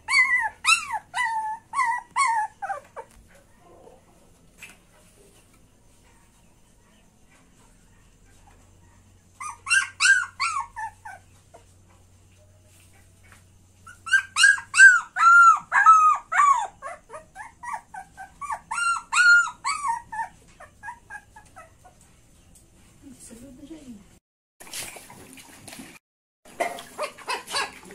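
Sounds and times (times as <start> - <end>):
puppy whining: 0.0 - 4.3, 8.8 - 11.8, 13.8 - 22.4.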